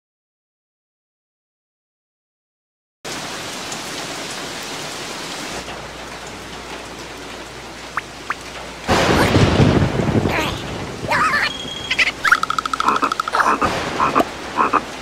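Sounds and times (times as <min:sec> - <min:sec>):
cartoon rain falling: 0:03.1 - 0:15.0.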